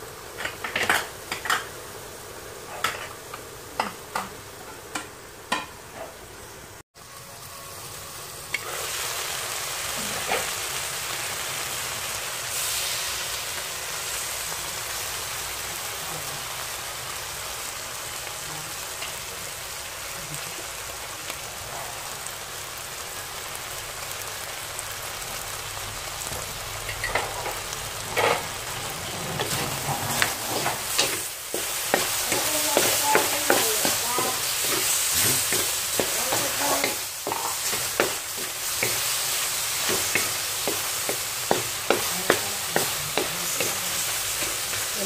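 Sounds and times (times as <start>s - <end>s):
food sizzling in a wok: 0.0s - 45.0s
wooden spatula scraping pan: 28.1s - 45.0s.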